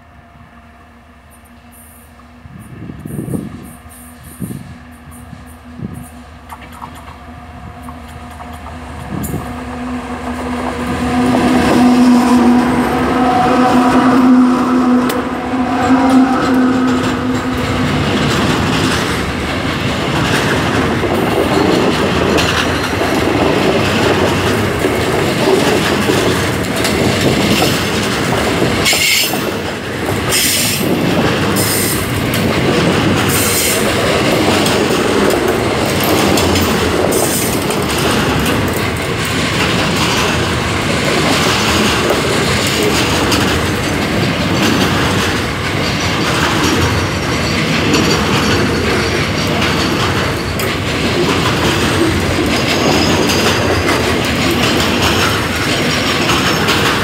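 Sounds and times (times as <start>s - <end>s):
diesel locomotive drone: 0.0s - 57.0s
train wheels rumbling on rails: 0.0s - 57.0s
clickety-clack over rail joints: 1.3s - 57.0s
high wheel squeals: 9.6s - 18.3s.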